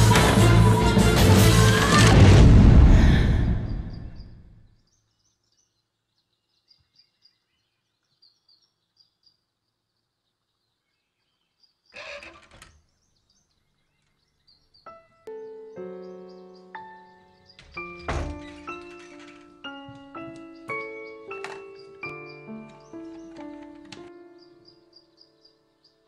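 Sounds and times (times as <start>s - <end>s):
soundtrack music boom: 0.0s - 4.3s
faint high bird chirping: 3.6s - 26.0s.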